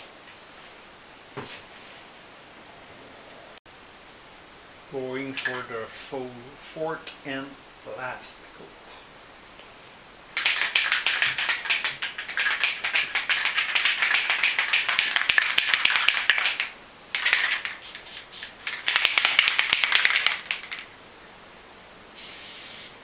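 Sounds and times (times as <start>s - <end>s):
aerosol can shaken with rattling ball: 5.3s - 5.7s, 10.4s - 20.9s.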